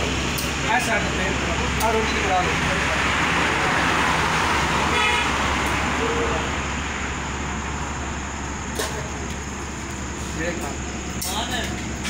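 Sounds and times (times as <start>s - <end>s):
road traffic passing: 0.0s - 12.0s
vehicle horn toot: 4.9s - 5.4s.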